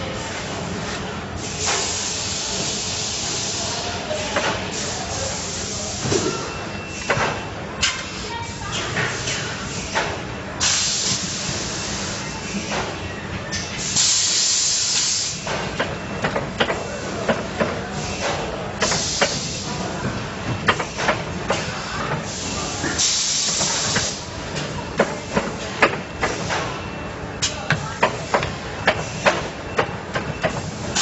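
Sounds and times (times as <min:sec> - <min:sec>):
compressed air hissing: 0:01.4 - 0:03.9, 0:10.6 - 0:11.7, 0:13.8 - 0:15.4, 0:18.8 - 0:19.7
machine clicks and knocks: 0:23.9 - 0:26.8.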